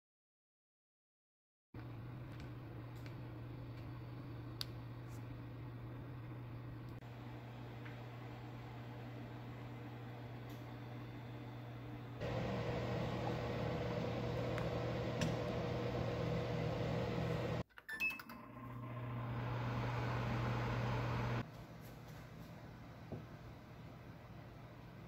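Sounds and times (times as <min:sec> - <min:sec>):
oven fan hum: 0:01.8 - 0:17.6, 0:18.7 - 0:21.4.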